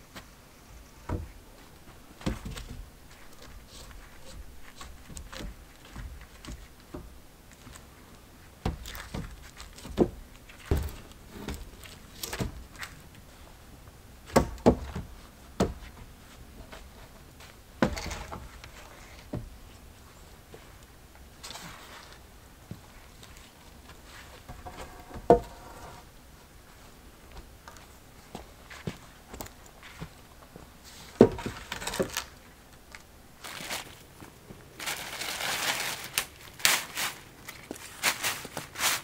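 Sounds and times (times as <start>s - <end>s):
wooden logs knocking together: 14.3s - 15.8s.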